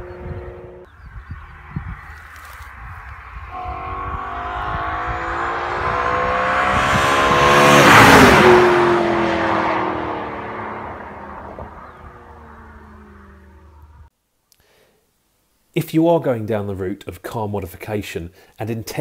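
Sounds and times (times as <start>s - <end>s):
car engine accelerating past: 0.0s - 1.8s, 2.4s - 14.0s.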